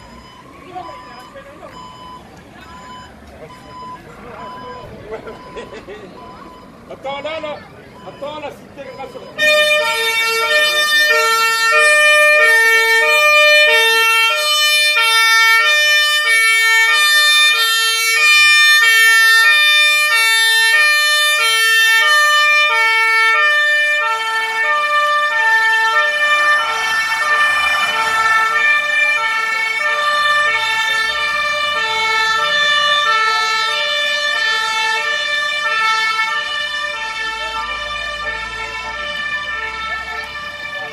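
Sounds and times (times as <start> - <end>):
two-tone fire engine siren: 0.0 - 40.9
truck engine pulling out: 25.4 - 33.0.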